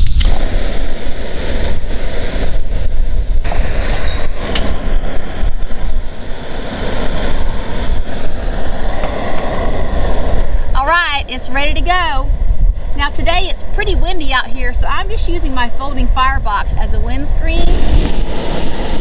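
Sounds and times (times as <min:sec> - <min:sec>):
wind rumble on microphone: 0:00.0 - 0:19.0
camp stove burner hissing: 0:00.4 - 0:10.8, 0:17.5 - 0:19.0.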